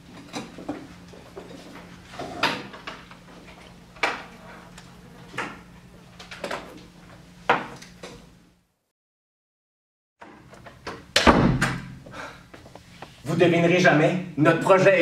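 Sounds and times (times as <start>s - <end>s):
desks and chairs knocking: 10.2s - 12.0s.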